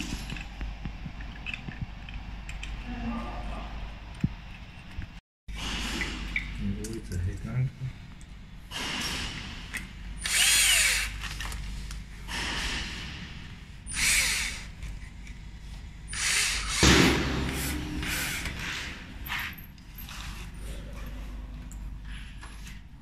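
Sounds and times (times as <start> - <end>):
cordless drill motor whine: 10.2 - 11.1, 13.9 - 14.7.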